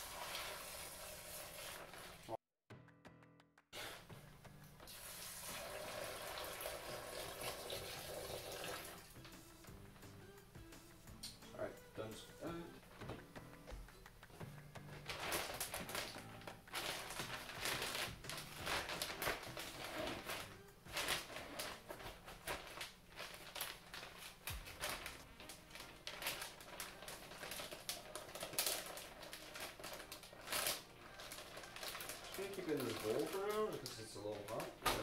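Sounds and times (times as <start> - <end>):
plastic bag crinkling: 15.0 - 35.0.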